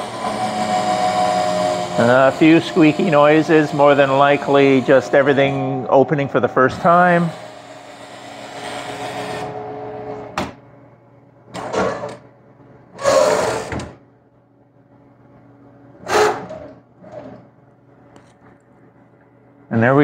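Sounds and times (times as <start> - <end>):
hydraulic pump motor running: 0.0 - 10.6, 12.9 - 14.0, 16.0 - 17.5.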